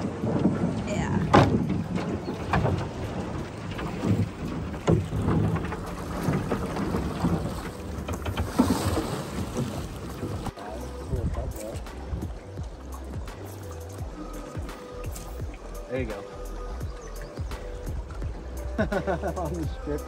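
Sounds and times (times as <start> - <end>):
wind on microphone: 0.0 - 13.3
water splashing against boat hull: 0.0 - 20.0.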